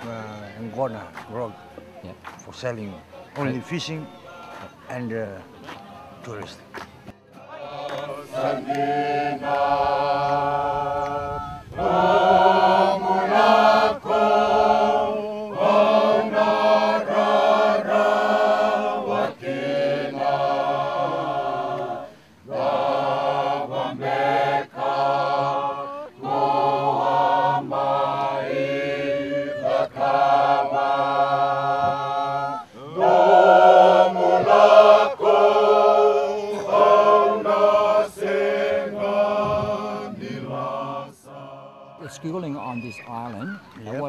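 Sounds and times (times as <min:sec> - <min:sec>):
group singing in harmony: 0:07.3 - 0:42.2.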